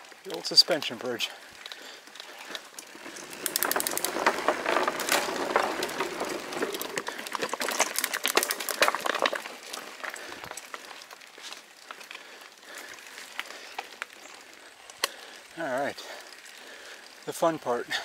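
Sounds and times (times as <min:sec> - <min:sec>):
bike tyres clattering on bridge: 0:02.5 - 0:14.4.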